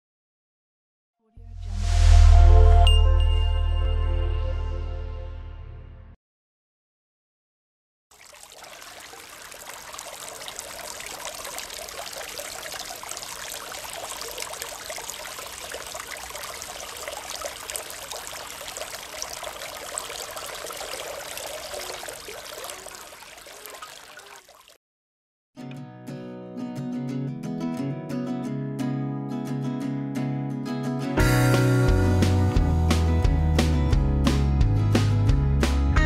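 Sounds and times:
fountain water trickling and splashing: 0:08.1 - 0:24.8.

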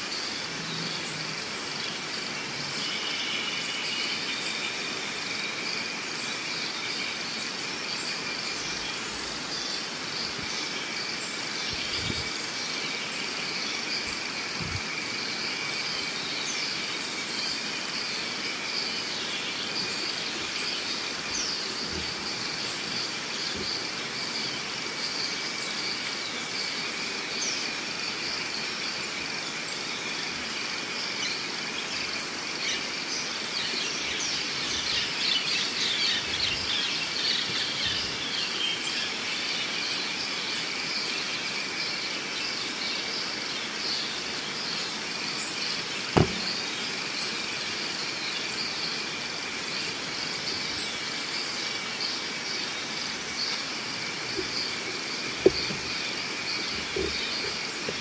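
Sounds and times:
birds chirping: 0:08.1 - 0:26.5, 0:44.0 - 0:49.0, 0:49.6 - 0:58.0
high insect buzzing: 0:19.1 - 0:24.8, 0:45.9 - 0:47.6, 0:50.5 - 0:58.0.

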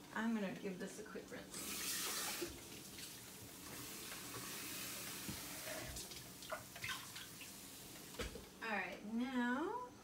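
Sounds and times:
tap running softly: 0:01.5 - 0:08.6.

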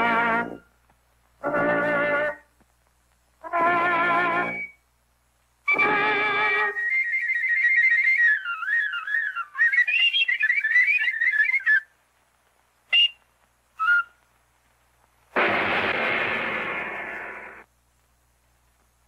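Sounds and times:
whistle-like wind instrument melody: 0:01.4 - 0:02.4, 0:03.4 - 0:04.8, 0:05.7 - 0:11.9, 0:12.9 - 0:13.2, 0:13.8 - 0:14.2
brass blast: 0:15.4 - 0:17.6.

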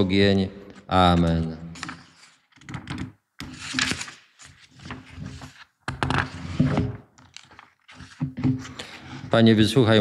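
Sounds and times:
book pages rustling: 0:01.1 - 0:06.3, 0:07.2 - 0:09.1.

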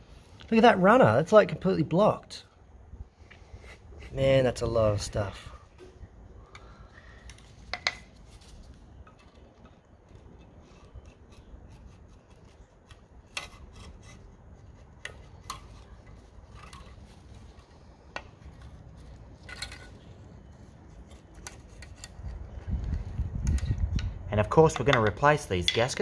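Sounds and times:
quiet scraping and rubbing: 0:03.2 - 0:06.1, 0:07.0 - 0:23.8.

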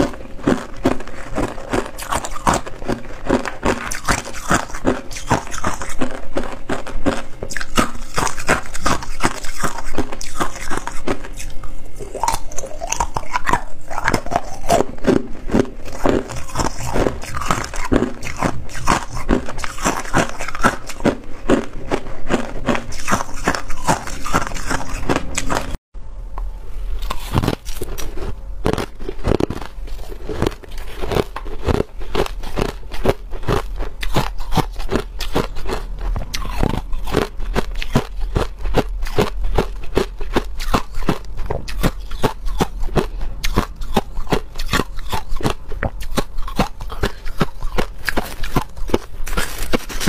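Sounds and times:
crushed ice being chewed: 0:00.0 - 0:25.8, 0:27.0 - 0:50.0.

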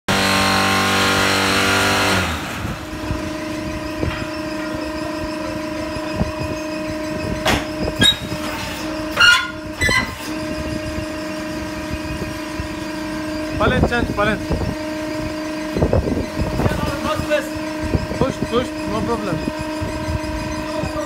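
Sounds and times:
machine buzzing drone: 0:00.1 - 0:21.0
motors humming: 0:00.1 - 0:21.0
metal clanks and knocks: 0:03.1 - 0:10.4.

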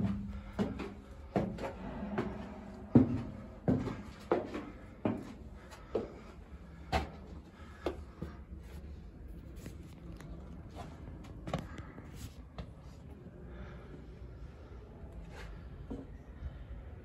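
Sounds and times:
footsteps on wooden planks: 0:00.0 - 0:08.8.

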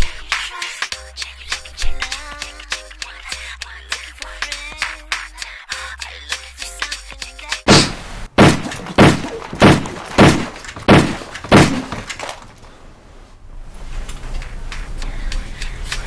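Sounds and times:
handgun shots: 0:07.7 - 0:12.4.

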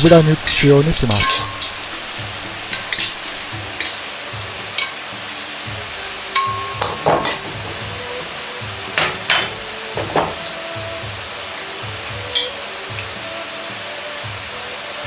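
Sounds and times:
garlic sizzling in oil: 0:00.0 - 0:15.0
metal ladle scraping a wok: 0:00.4 - 0:04.1.

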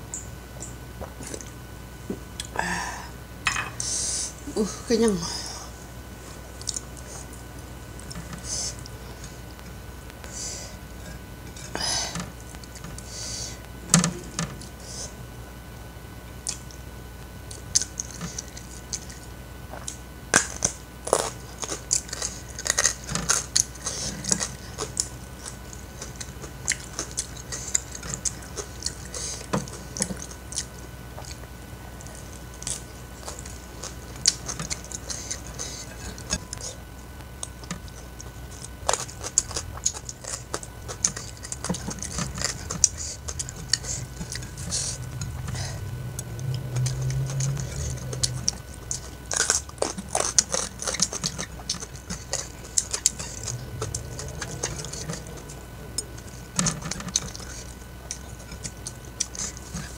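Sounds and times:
steady low hum: 0:00.0 - 0:59.9
chewing and mouth smacks: 0:06.6 - 0:07.4, 0:16.3 - 0:16.8, 0:17.4 - 0:59.9.

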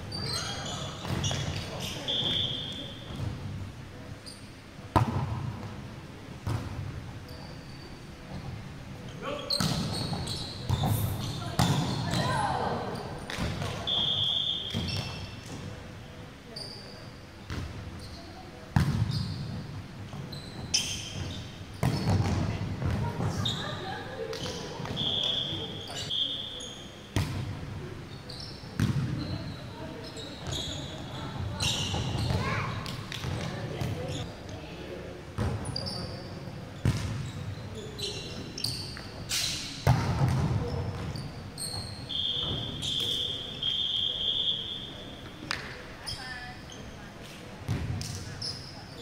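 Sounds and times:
sneaker squeaks on court floor: 0:00.0 - 0:03.3, 0:04.2 - 0:05.3, 0:06.4 - 0:08.5, 0:09.4 - 0:15.8, 0:16.5 - 0:23.8, 0:24.4 - 0:27.5, 0:28.1 - 0:34.3, 0:35.4 - 0:45.4, 0:47.7 - 0:49.0
players' voices: 0:22.1 - 0:26.7.

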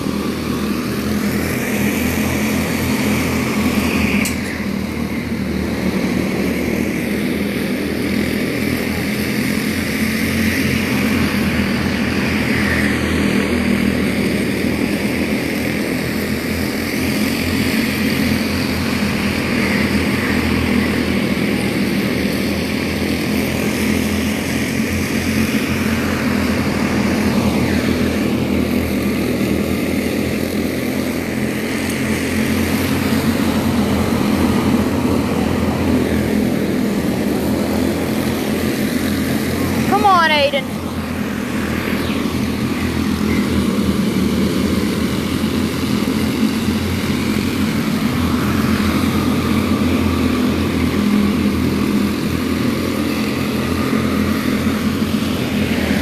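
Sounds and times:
small race car engines buzzing: 0:00.0 - 0:56.0.

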